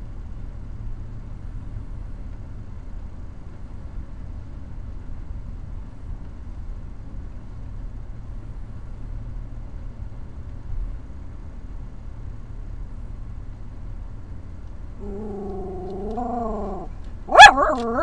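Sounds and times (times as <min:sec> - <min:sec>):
car engine and tyres rumbling: 0:00.0 - 0:18.0.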